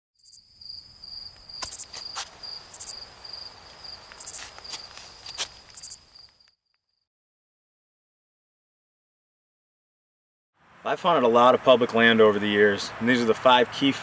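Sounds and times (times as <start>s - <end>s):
buzzing insect calls: 0.2s - 6.8s
pulsing high insect chirp: 0.2s - 7.0s
crackling snaps: 3.5s - 6.8s.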